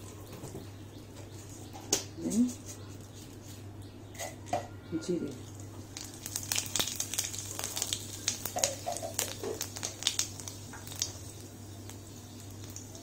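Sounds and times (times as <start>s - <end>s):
spices crackling in hot oil: 5.3s - 13.0s.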